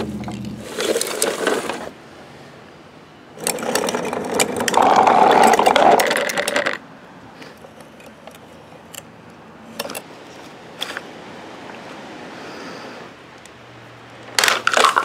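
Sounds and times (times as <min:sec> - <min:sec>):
toy truck rattling on pavement: 0:00.0 - 0:02.0, 0:03.4 - 0:06.9, 0:14.3 - 0:15.0.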